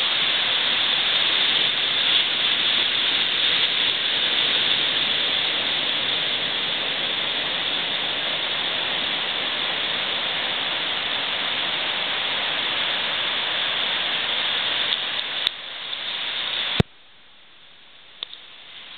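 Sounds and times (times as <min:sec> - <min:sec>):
ocean surf breaking: 0:00.0 - 0:16.8
click: 0:18.2 - 0:18.4.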